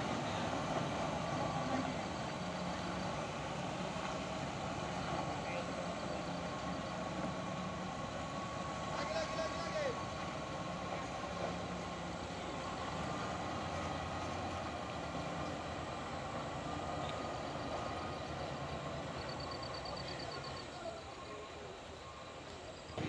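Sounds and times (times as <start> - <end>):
diesel engines under load: 0.0 - 23.0.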